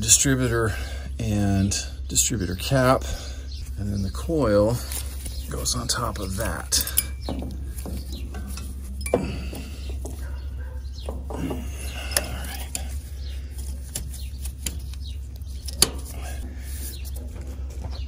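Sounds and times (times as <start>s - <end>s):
metal clinks taps and scrapes: 6.2s - 12.9s.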